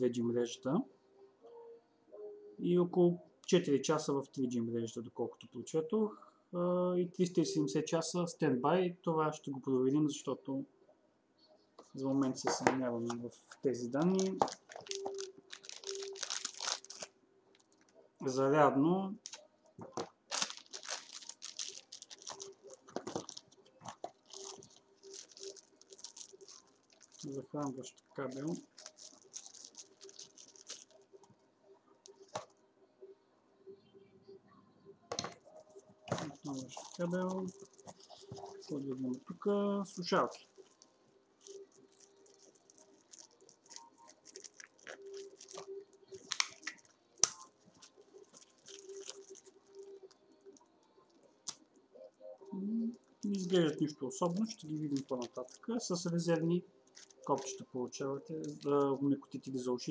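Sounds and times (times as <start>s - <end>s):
plastic wrapping crinkling: 13.4s - 18.1s, 19.2s - 31.4s, 32.0s - 32.6s, 35.1s - 59.9s.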